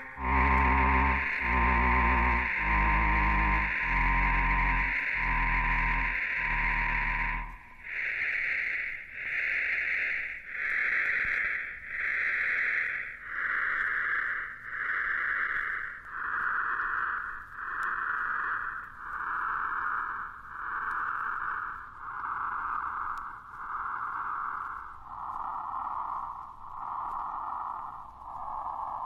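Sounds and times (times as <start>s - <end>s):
synthesized hiss-like notes: 0.0s - 29.0s.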